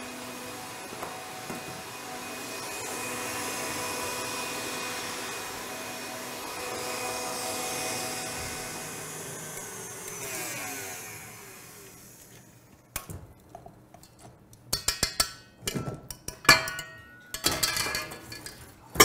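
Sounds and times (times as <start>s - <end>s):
stand mixer motor winding down: 0.0s - 12.5s
metal bowl and whisk clanking: 14.7s - 19.0s.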